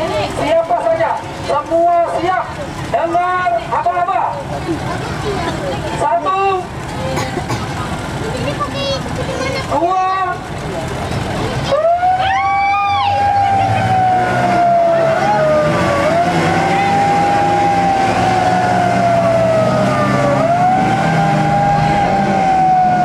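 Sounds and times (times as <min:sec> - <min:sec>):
boat engines droning: 0:00.0 - 0:23.0
siren wailing: 0:11.7 - 0:23.0.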